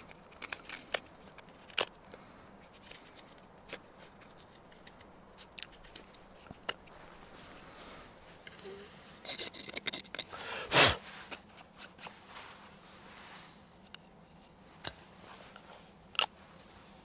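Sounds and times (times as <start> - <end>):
knife carving wood: 0.0 - 2.0, 2.6 - 7.0, 8.3 - 12.1.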